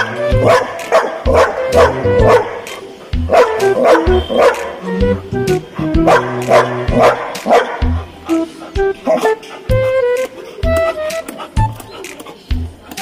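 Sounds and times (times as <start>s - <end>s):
dog barking: 0.0s - 4.8s, 6.0s - 8.0s, 9.0s - 9.4s
background music: 0.0s - 13.0s.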